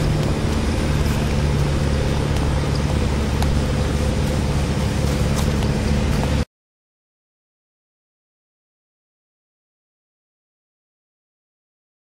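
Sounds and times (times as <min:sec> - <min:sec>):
loud motor hum: 0:00.0 - 0:06.4.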